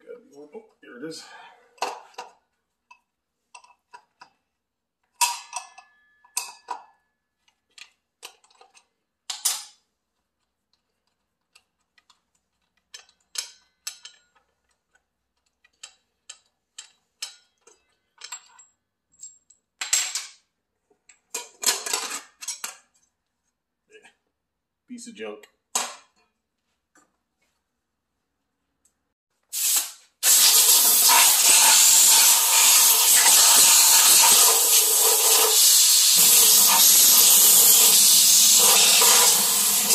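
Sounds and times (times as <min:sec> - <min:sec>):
metal parts clinking and clanking: 0:05.1 - 0:09.8, 0:10.4 - 0:23.1.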